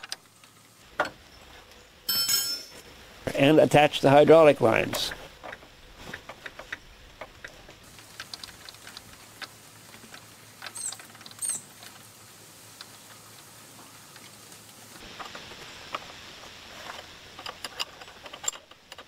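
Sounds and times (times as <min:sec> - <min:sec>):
metallic clinks: 0:02.1 - 0:02.8
hose fittings clicking and tapping: 0:16.9 - 0:19.0.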